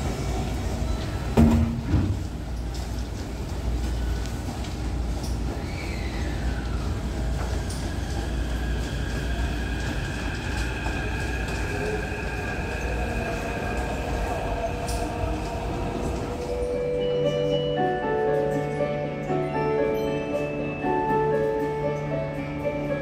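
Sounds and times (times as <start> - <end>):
train wheels rumbling on rails: 0.0 - 17.2.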